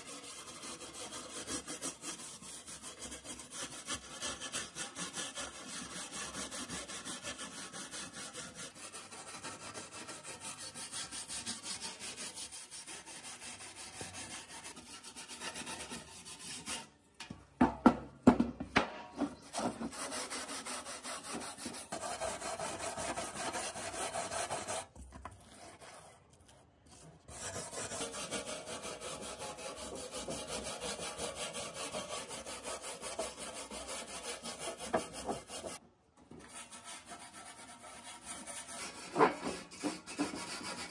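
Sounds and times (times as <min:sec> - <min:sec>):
wire brush scrubbing metal: 0:00.0 - 0:17.0.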